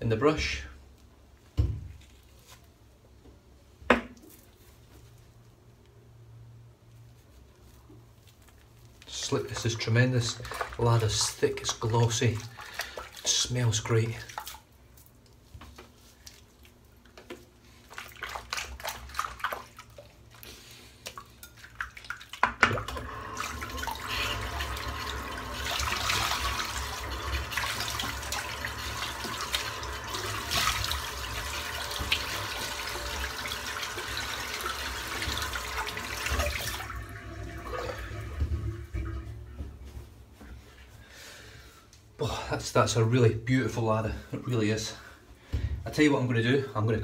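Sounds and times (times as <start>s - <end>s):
tap water running into sink: 21.4s - 39.7s.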